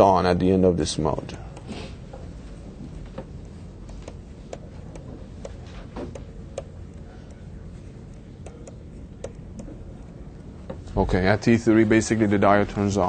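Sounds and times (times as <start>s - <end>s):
low steady hum: 0.0s - 13.0s
stylus tapping on tablet: 3.1s - 7.4s, 8.4s - 9.8s.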